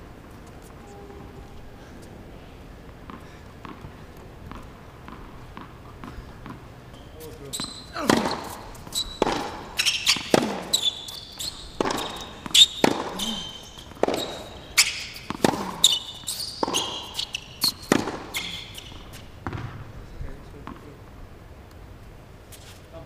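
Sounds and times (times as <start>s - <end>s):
shoes squeaking: 2.9s - 19.7s, 22.5s - 23.0s
tennis ball hitting racket: 3.0s - 6.7s, 7.4s - 19.8s
tennis ball bouncing on court: 3.0s - 19.9s, 20.6s - 21.0s.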